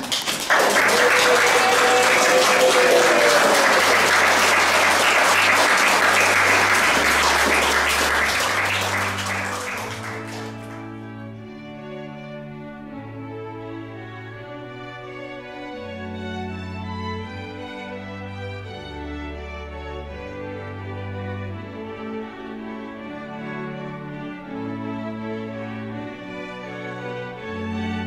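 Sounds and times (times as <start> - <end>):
crowd applause: 0.0 - 11.0
soft instrumental music: 4.0 - 28.0.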